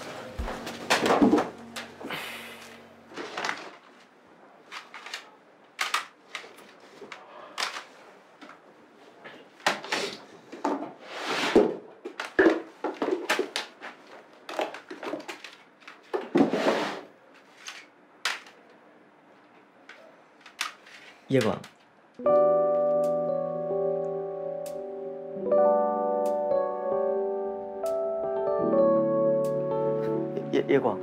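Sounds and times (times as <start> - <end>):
small objects knocking and rustling: 12.0 - 16.5
background music: 22.2 - 31.0.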